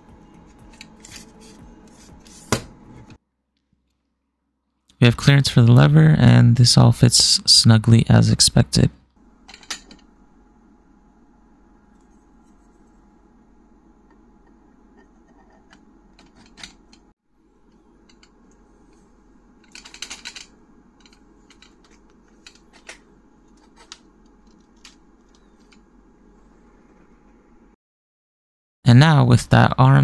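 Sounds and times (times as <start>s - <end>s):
plastic parts clicking and rattling: 15.4s - 17.0s, 19.6s - 25.8s.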